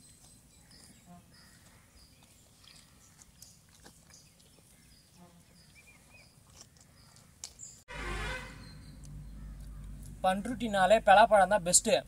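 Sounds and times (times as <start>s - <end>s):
faint bird chirps: 8.5s - 9.9s.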